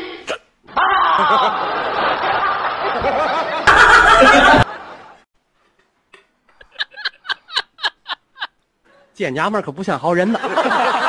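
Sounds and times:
woman laughing: 3.0s - 4.8s, 6.6s - 8.6s.

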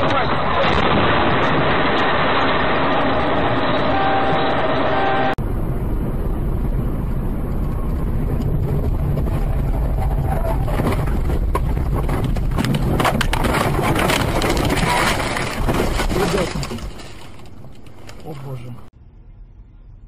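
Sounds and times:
vehicle engine low rumble: 5.3s - 20.0s
rapid knocks and rattles: 8.3s - 18.2s.

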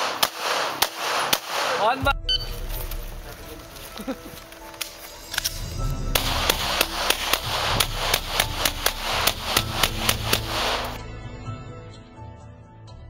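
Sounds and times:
rapid pistol shots: 0.0s - 2.0s, 6.2s - 11.0s.

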